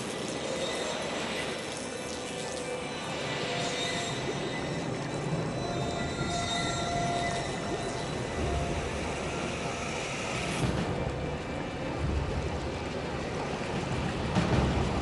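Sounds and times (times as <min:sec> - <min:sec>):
water churning and bubbling: 0:00.0 - 0:15.0
low rumbles: 0:05.2 - 0:15.0.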